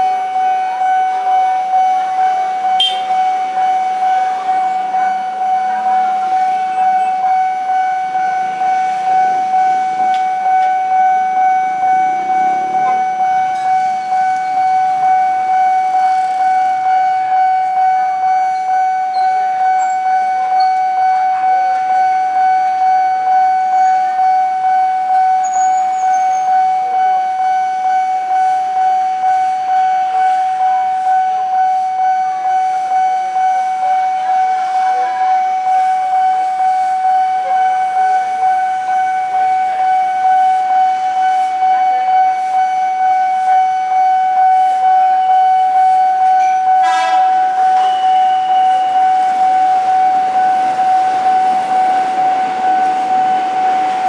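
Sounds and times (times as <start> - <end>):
level crossing alarm pulsing tone: 0.0 - 54.0
short high beep: 2.8 - 3.2, 46.4 - 50.6
electric train passing rumble: 46.3 - 54.0.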